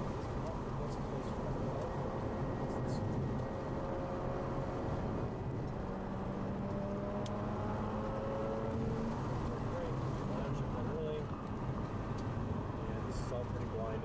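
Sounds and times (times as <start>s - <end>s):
car engine drone: 0.0s - 14.0s
road and wind noise: 0.0s - 14.0s.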